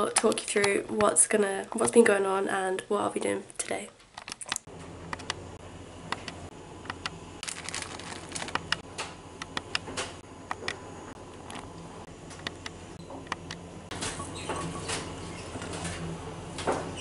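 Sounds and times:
steady low hum: 0.0s - 17.0s
plastic bag crinkling: 7.4s - 8.8s.

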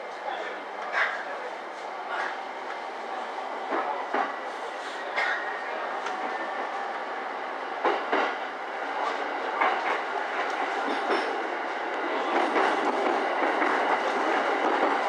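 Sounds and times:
train running rumble: 3.6s - 15.0s
train wheels clacking over rail joints: 7.8s - 8.4s, 9.6s - 11.4s, 12.3s - 15.0s.

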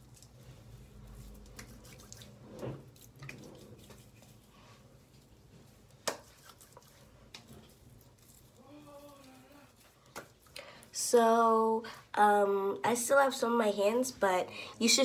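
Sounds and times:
soapy hands patting skin: 0.0s - 10.6s.

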